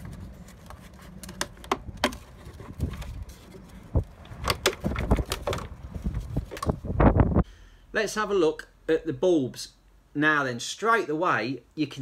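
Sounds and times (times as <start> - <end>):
plastic bulb carrier clicks and rattles: 1.2 - 3.2, 4.4 - 5.8.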